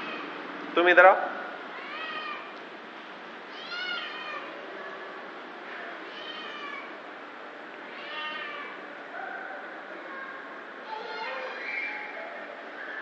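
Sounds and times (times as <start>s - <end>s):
cat meowing: 1.7s - 2.5s, 3.5s - 4.6s, 6.0s - 7.0s, 7.9s - 8.8s.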